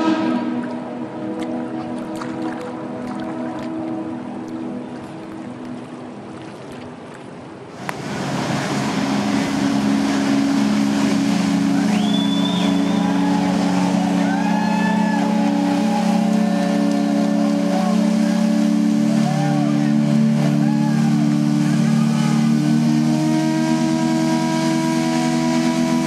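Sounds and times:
deep steam whistle blast: 0:00.0 - 0:01.0, 0:08.9 - 0:26.0
high sliding whistled notes: 0:11.7 - 0:13.4.

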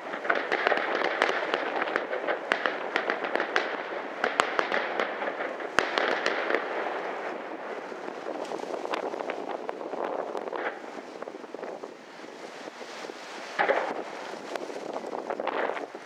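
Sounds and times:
fireworks crackling: 0:00.0 - 0:16.0
fireworks popping: 0:00.0 - 0:16.0
firework bang: 0:13.6 - 0:14.2.

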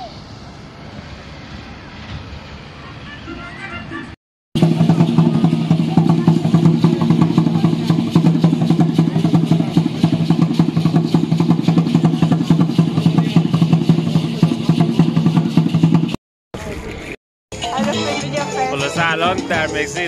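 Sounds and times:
fast dense drumming: 0:04.6 - 0:16.2.

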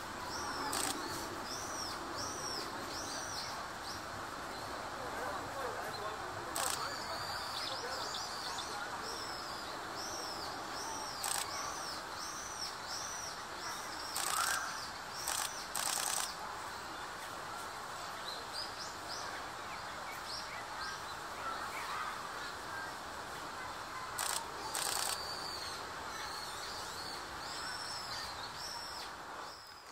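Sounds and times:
songbird chirping: 0:00.0 - 0:29.9
camera shutter clicks: 0:00.6 - 0:01.0, 0:06.6 - 0:06.9, 0:11.2 - 0:11.6, 0:14.1 - 0:14.6, 0:15.2 - 0:16.3, 0:24.2 - 0:25.2.

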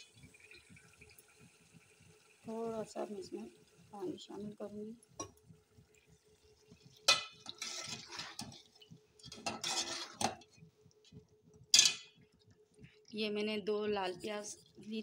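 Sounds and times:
metal spoon scraping a pot: 0:07.1 - 0:08.6, 0:09.2 - 0:10.5.

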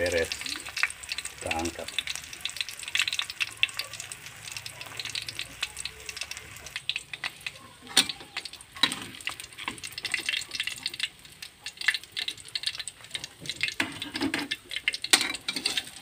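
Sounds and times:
hot oil crackling and popping: 0:00.0 - 0:16.0
metal spatula scraping and clinking: 0:13.8 - 0:16.0.

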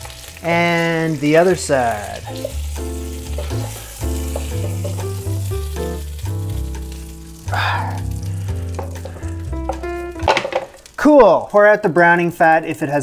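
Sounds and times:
butter and oil sizzling in a pot: 0:00.0 - 0:11.5
background music with bass line: 0:01.5 - 0:10.4.

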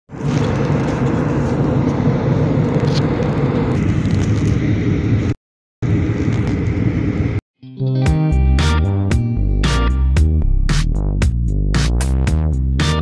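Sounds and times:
jet engine roar in cabin: 0:00.1 - 0:07.4.

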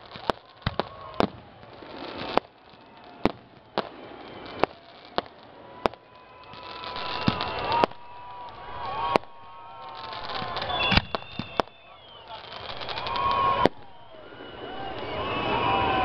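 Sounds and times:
firework bangs: 0:00.0 - 0:16.0
firework crackling: 0:00.0 - 0:16.0
firework whistle: 0:00.0 - 0:16.0.

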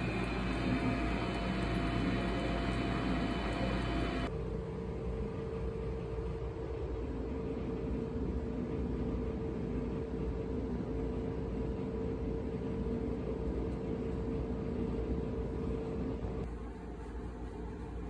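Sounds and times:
steady machine hum: 0:00.0 - 0:18.0.

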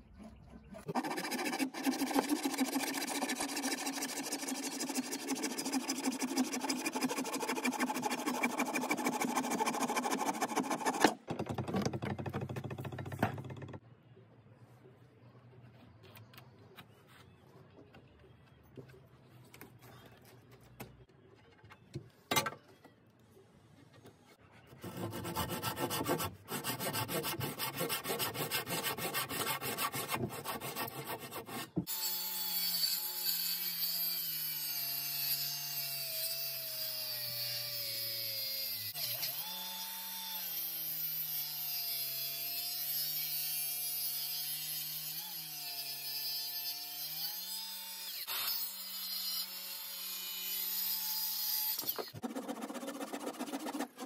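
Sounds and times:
circular saw cutting timber: 0:00.8 - 0:11.2, 0:24.7 - 0:54.0.

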